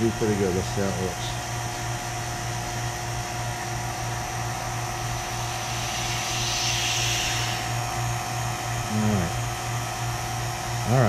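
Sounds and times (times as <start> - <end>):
vacuum pump humming: 0.0 - 11.0
hiss of air through valve: 5.1 - 7.9.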